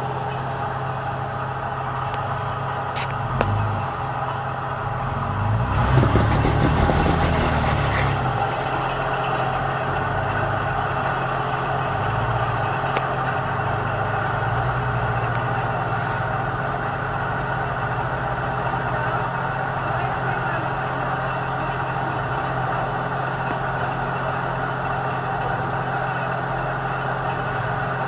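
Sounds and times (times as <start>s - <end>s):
engine running at low revs: 0.0s - 28.0s
loud rushing noise: 5.6s - 9.2s.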